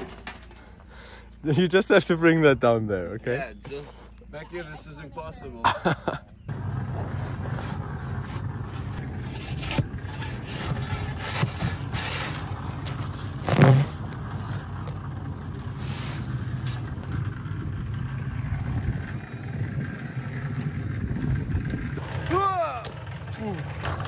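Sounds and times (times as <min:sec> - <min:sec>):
steady low hum: 0:00.0 - 0:24.0
shovels scraping cement and sand: 0:07.1 - 0:14.0, 0:15.7 - 0:17.0.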